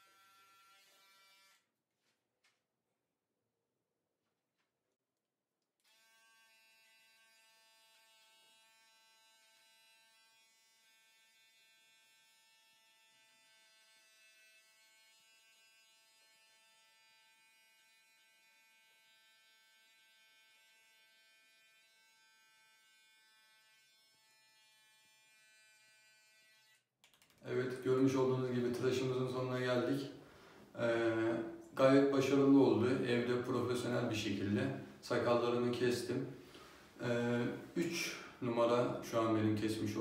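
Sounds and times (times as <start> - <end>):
electric beard trimmer buzzing: 0.0 - 1.6, 5.9 - 26.8.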